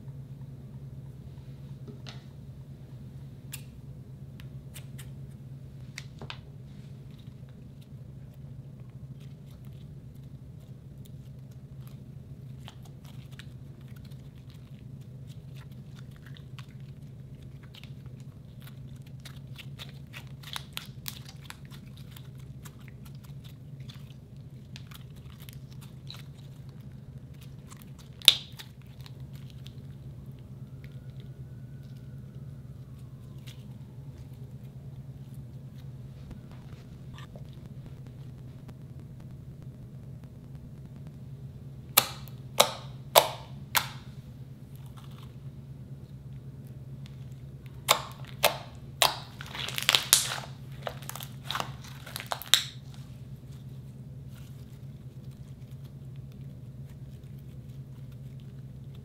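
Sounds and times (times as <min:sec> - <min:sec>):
steady low hum: 0:00.0 - 0:59.0
slime clicking and popping: 0:27.5 - 0:29.8, 0:41.9 - 0:44.1, 0:47.6 - 0:52.8
slime snapping: 0:27.7 - 0:29.8, 0:41.9 - 0:44.1, 0:47.6 - 0:52.8.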